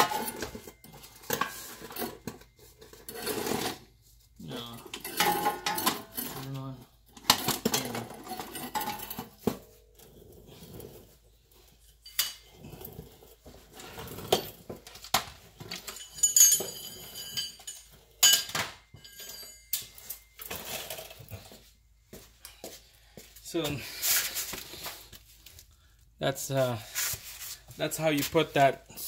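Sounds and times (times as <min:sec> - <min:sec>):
metal tools clinking and knocking: 0:00.0 - 0:03.8, 0:04.5 - 0:09.8, 0:11.7 - 0:13.1, 0:13.7 - 0:21.7.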